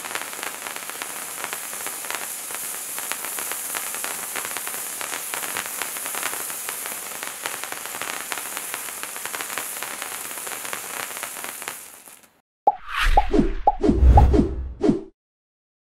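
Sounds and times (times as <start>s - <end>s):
firework hissing and crackling: 0.0s - 12.4s
loud whoosh: 12.7s - 15.1s.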